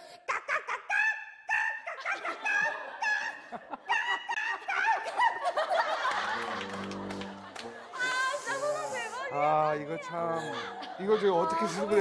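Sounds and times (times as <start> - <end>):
woman laughing: 0.3 - 6.4.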